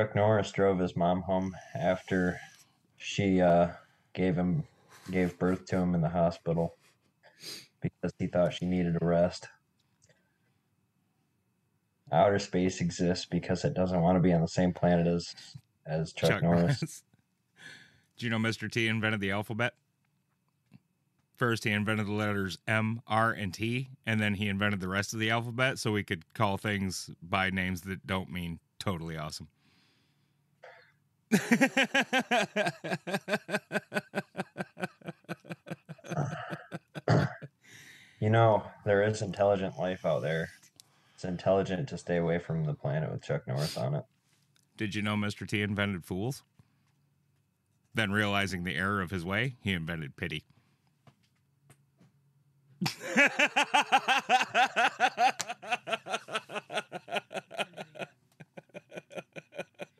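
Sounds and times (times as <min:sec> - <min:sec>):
person laughing hard: 0:31.3 - 0:37.5, 0:52.8 - 0:59.9
short breath: 0:37.6 - 0:38.2.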